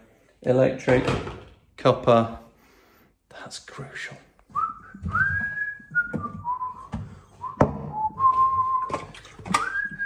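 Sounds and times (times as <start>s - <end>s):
knocks and clunks in kitchen: 0.0s - 2.4s, 4.5s - 10.0s
man whistling a slow tune: 4.5s - 10.0s.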